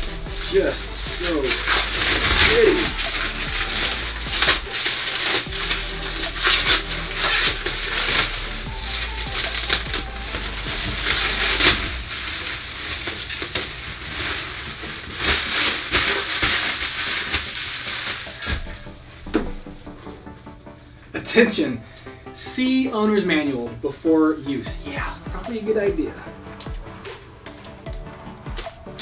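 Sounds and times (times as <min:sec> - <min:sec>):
plastic wrap crinkling: 0:00.0 - 0:21.1.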